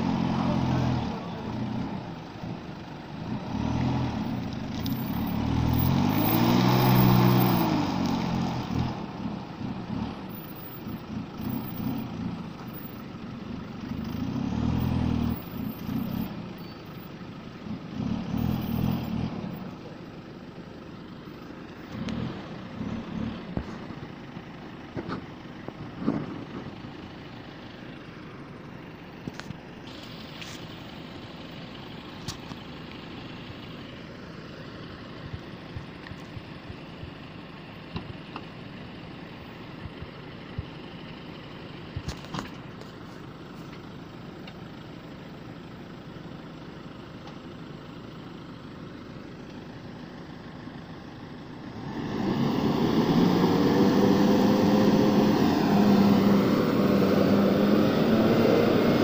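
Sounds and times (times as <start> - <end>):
pickup engine revving: 0.0 - 16.8, 17.6 - 20.0, 21.7 - 25.2, 51.4 - 59.0
engine running steadily: 0.0 - 59.0.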